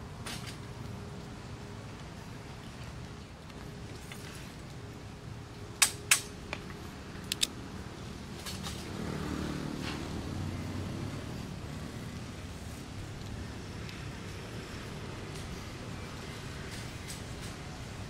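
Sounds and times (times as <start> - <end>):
low engine hum: 0.0 - 18.0
outdoor background: 0.0 - 18.0
sharp clicks: 7.2 - 7.6.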